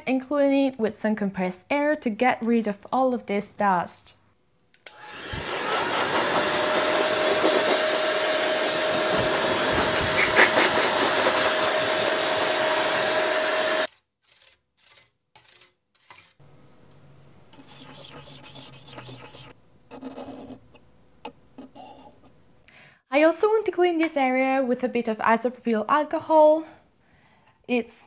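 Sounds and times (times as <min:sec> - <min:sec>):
electric air duster blowing: 0:04.9 - 0:13.9
motor whine: 0:04.9 - 0:13.9.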